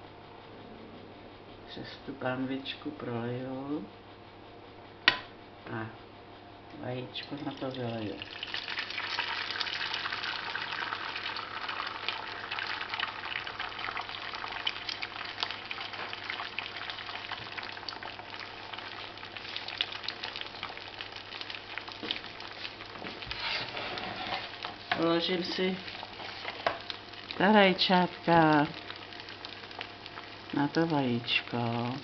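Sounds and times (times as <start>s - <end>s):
egg sizzling in hot oil: 7.4s - 32.0s.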